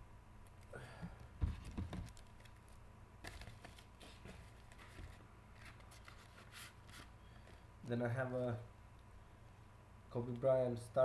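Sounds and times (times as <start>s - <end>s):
cards and plastic holders handled: 0.5s - 7.6s.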